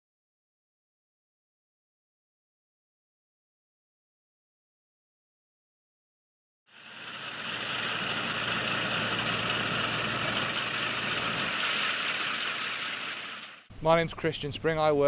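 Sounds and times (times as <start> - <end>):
tractor engine hum: 6.7 - 13.6
aerator machine hissing: 6.7 - 13.7.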